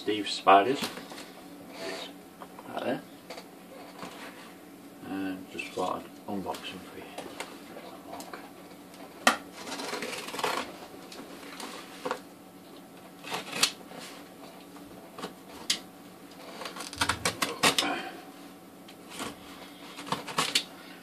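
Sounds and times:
utility knife cutting packing tape: 0:13.2 - 0:13.8.

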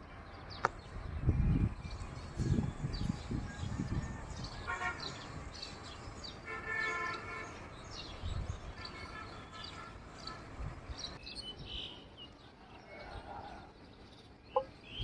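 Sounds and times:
small birds chirping: 0:00.3 - 0:15.0
distant vehicle horn: 0:04.6 - 0:05.4, 0:06.4 - 0:07.6, 0:08.8 - 0:10.7.

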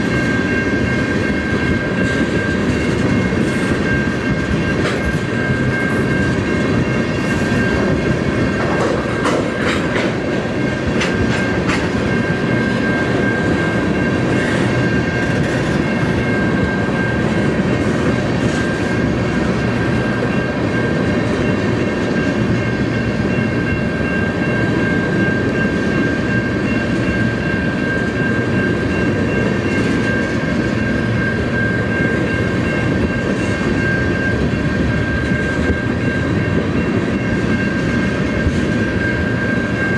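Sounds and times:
wheel clatter over rail joints: 0:00.0 - 0:23.8
freight train rumble: 0:00.0 - 0:39.9
steady high tone: 0:00.0 - 0:39.9.

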